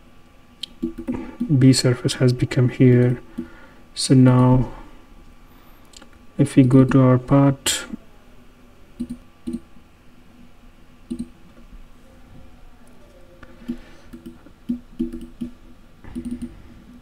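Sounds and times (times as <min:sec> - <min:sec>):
computer mouse clicks: 0:00.6 - 0:01.5, 0:09.0 - 0:09.6, 0:11.1 - 0:11.3, 0:13.6 - 0:16.6.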